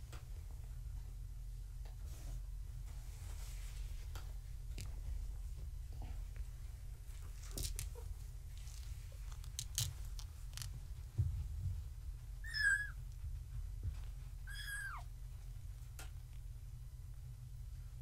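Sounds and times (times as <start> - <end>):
kitten mewing: 12.4 - 13.0, 14.5 - 15.1.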